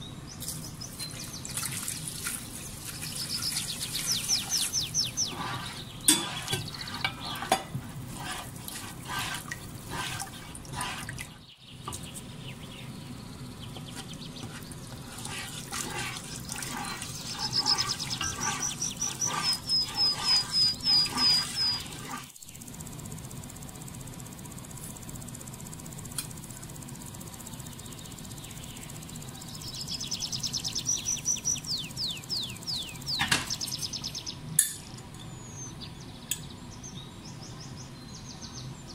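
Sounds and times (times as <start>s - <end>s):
bird chirping: 2.5s - 7.4s, 16.2s - 22.6s, 27.6s - 34.4s
spatula stirring thick sauce: 4.2s - 11.4s, 13.8s - 22.3s.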